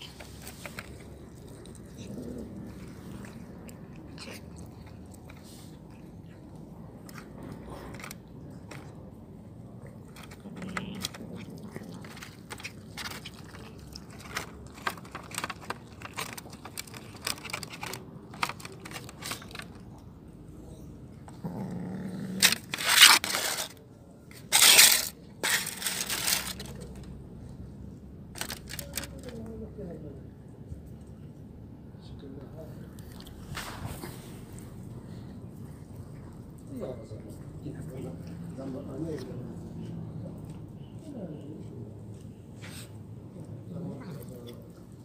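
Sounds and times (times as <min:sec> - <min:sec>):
cats chewing and crunching: 0:00.0 - 0:45.0
foil trays crinkling: 0:22.4 - 0:23.8, 0:24.5 - 0:26.9.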